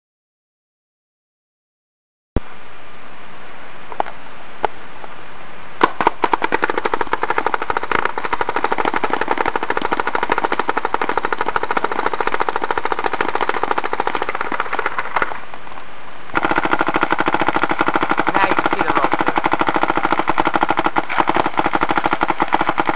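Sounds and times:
paintball marker firing: 5.8 - 15.4, 16.3 - 22.9.

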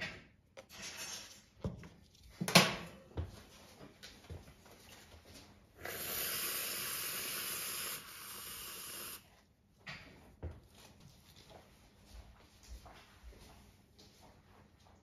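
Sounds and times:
whipped cream can spraying: 5.8 - 9.2.

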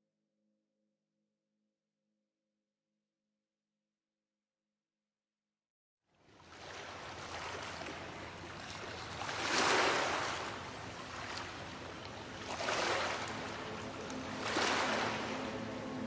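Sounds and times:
ocean waves washing in: 6.3 - 16.0.

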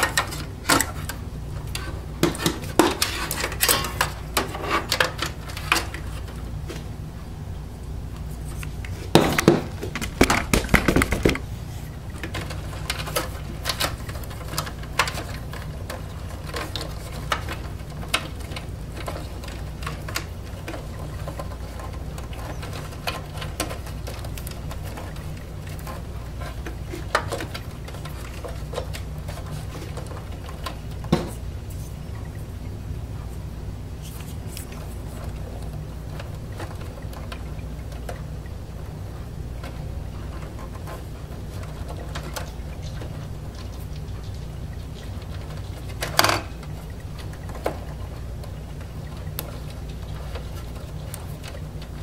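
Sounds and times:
cables rattling against metal case: 0.0 - 52.0
steady low hum: 0.0 - 52.0.

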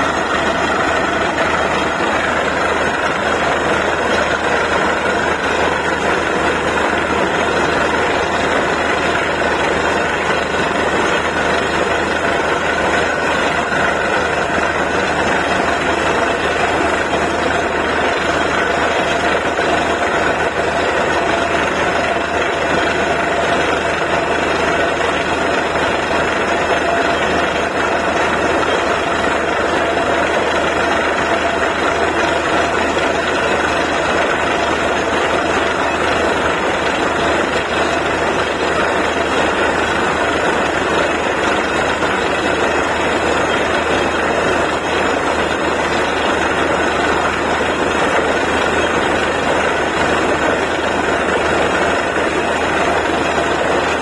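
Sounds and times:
drilling rig engine running: 0.0 - 54.0.

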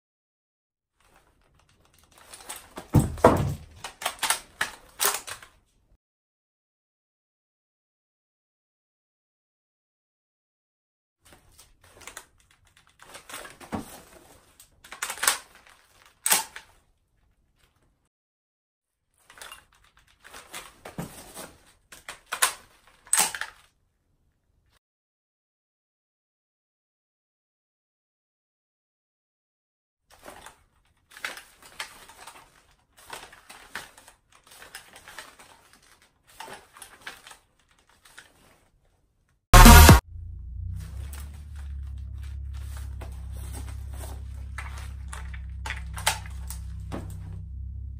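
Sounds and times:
rifle magazine clicks and rattles: 3.8 - 5.6, 14.8 - 15.6, 16.2 - 16.7
clothing and gear rustling: 30.1 - 39.1, 40.8 - 47.6.

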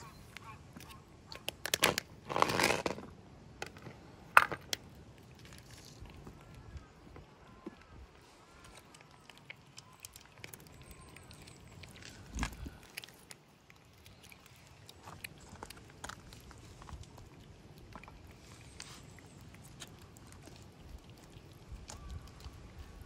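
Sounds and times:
cats crunching dry kibble: 0.3 - 7.2, 8.0 - 23.0
cats lapping wet food: 4.8 - 23.0.

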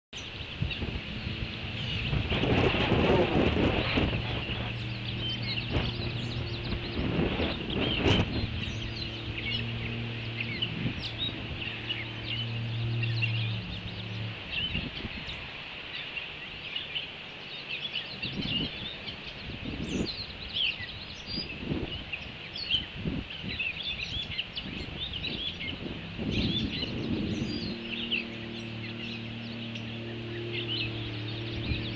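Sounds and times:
ospreys chirping: 0.2 - 17.0, 17.8 - 31.9
low steady drone: 0.2 - 31.9
low thumps: 0.8 - 15.0.

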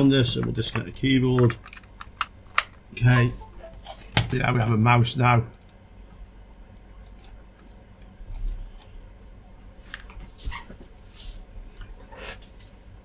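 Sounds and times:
computer mouse clicks: 6.8 - 8.9.

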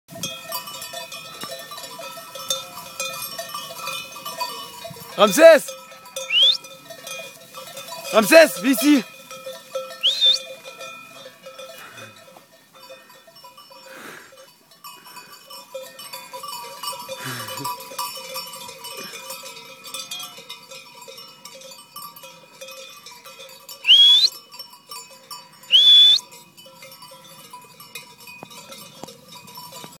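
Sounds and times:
sheep bells ringing: 0.1 - 30.0
person whistling loudly: 6.3 - 6.6, 10.0 - 10.5, 23.8 - 24.3, 25.7 - 26.2.

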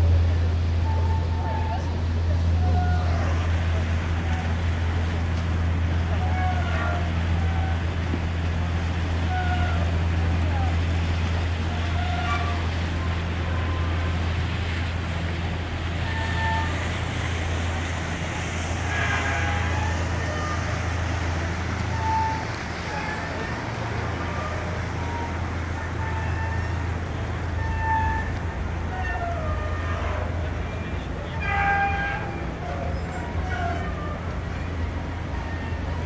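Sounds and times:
ship engine drone: 0.0 - 36.0
distant voices and calls: 18.8 - 36.0.

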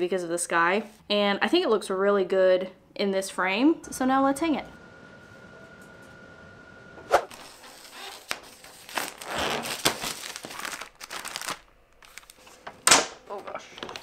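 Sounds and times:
plastic wrap crinkling: 7.3 - 14.0.

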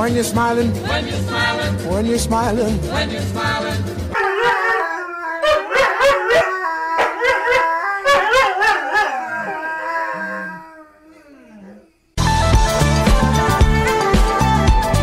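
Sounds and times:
dog howling: 4.1 - 12.0
dog yips: 4.2 - 10.3.

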